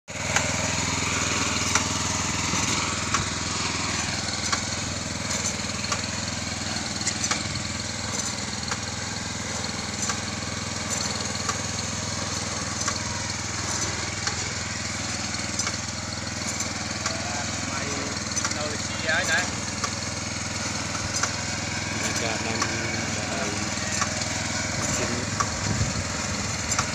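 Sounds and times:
small engine running: 0.1s - 26.9s
regular sharp click: 0.3s - 0.6s, 1.6s - 2.0s, 2.6s - 3.4s, 4.4s - 6.1s, 7.0s - 8.9s, 9.5s - 10.3s, 10.9s - 11.8s, 12.8s - 14.5s, 15.4s - 17.2s, 18.3s - 18.8s, 19.8s - 22.8s, 23.9s - 25.6s, 26.6s - 26.9s.

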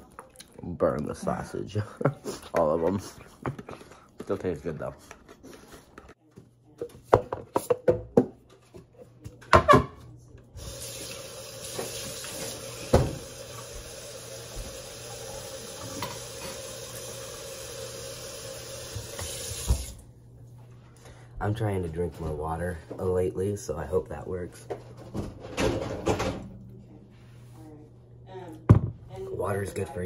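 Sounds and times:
faucet running into plastic cup: 10.6s - 20.0s.

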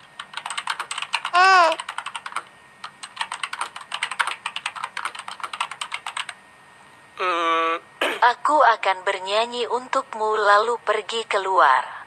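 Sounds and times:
typing on a keyboard: 0.0s - 6.4s
person humming: 1.4s - 1.8s, 7.2s - 7.8s.

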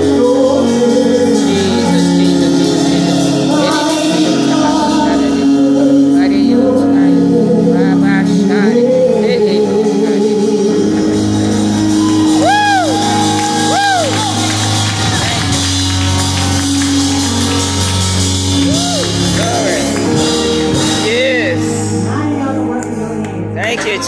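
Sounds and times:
man shouting and singing: 0.0s - 15.7s, 18.6s - 22.2s
held organ chords: 0.0s - 24.0s
congregation clapping: 11.9s - 20.8s.

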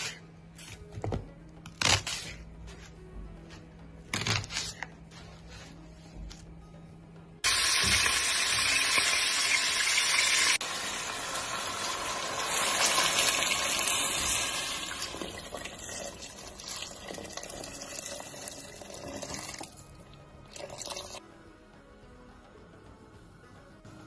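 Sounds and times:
water pouring into a pot: 7.4s - 19.9s, 20.5s - 21.2s.

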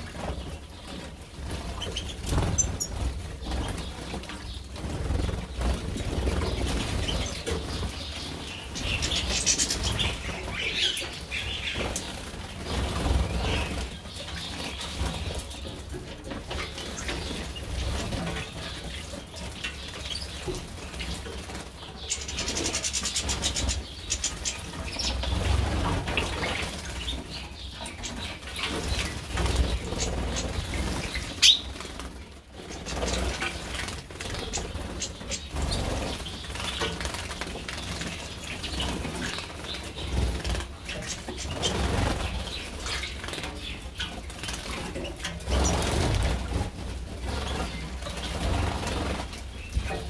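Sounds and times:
birds chirping and twittering: 0.0s - 50.0s
wings fluttering and splashing: 0.0s - 50.0s
bird trill: 29.6s - 31.7s.

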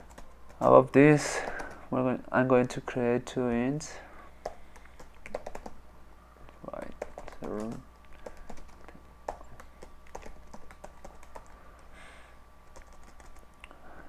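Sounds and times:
computer keyboard typing: 0.0s - 0.8s, 1.4s - 1.8s, 4.4s - 5.8s, 6.8s - 11.9s, 12.7s - 13.4s.

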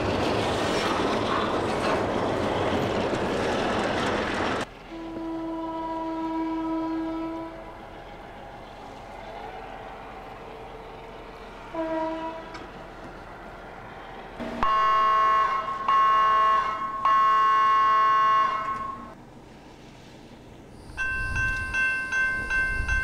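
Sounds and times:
train running noise: 0.0s - 23.0s
locomotive chime air horn: 4.9s - 7.6s, 11.7s - 12.6s, 14.5s - 19.2s.

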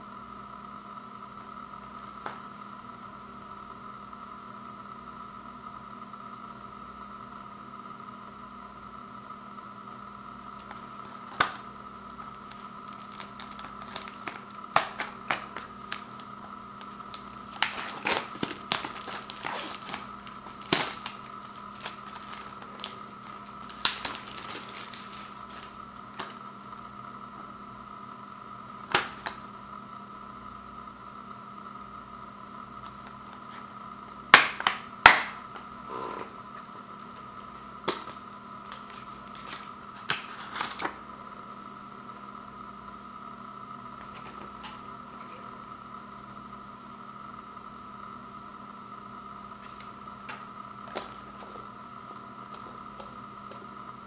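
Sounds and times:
faint background hum: 0.0s - 54.0s
plastic shrink-wrap crinkling: 12.2s - 26.4s, 37.8s - 41.0s.

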